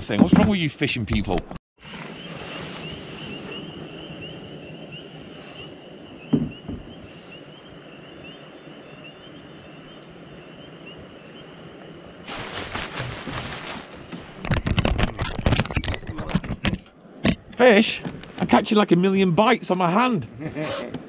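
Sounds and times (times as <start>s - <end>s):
knock: 6.3s - 6.8s.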